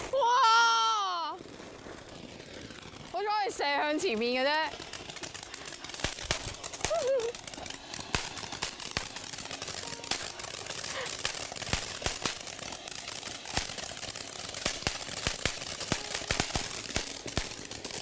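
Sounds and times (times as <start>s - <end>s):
firework crackles and pops: 0.0s - 18.0s
firework hissing: 0.0s - 18.0s.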